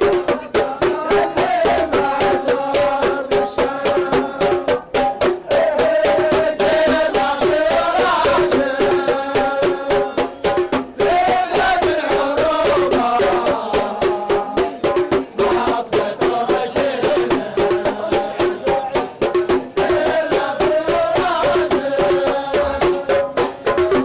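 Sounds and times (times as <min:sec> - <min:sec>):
barrel drum beating: 0:00.0 - 0:24.0
frame drums beating: 0:00.0 - 0:24.0
men singing together: 0:00.0 - 0:24.0.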